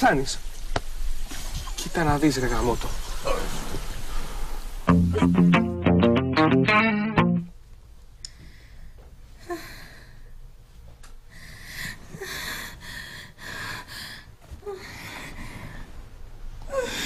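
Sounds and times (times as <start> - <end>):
woman breathing heavily and sighing: 8.3 - 10.4, 11.2 - 17.0.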